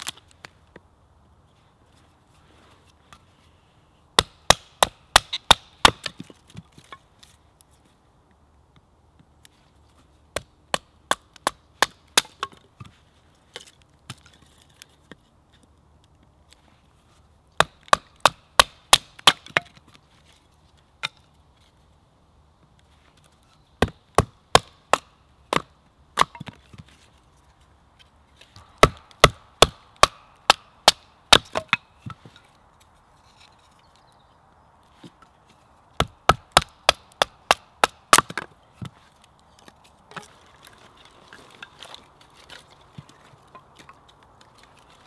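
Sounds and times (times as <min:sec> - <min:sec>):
wood cracking and splintering: 0:36.0 - 0:45.0.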